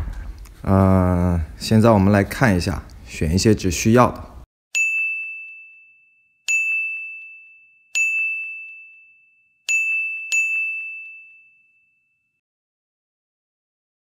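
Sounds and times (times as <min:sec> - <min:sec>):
bell-like ding: 0:04.7 - 0:12.4.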